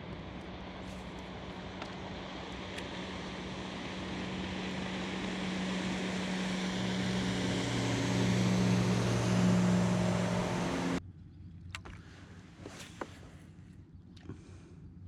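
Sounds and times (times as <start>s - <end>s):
motorboat engine passing: 0.0s - 11.0s
lower engine tone: 0.0s - 12.0s.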